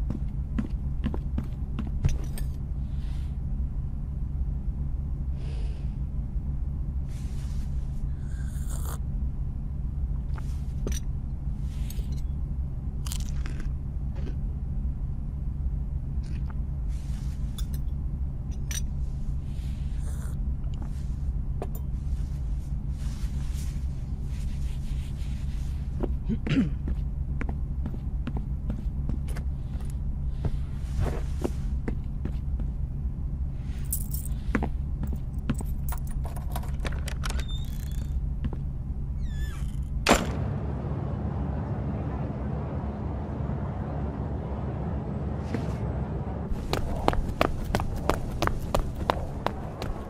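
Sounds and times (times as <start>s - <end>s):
room ambience hum: 0.0s - 50.0s
footsteps on floor: 46.5s - 50.0s.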